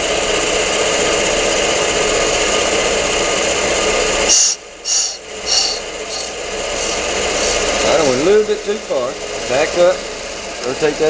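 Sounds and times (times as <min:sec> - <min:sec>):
brake lathe running: 0:00.0 - 0:11.0
cutting bit scratching drum: 0:04.3 - 0:08.3.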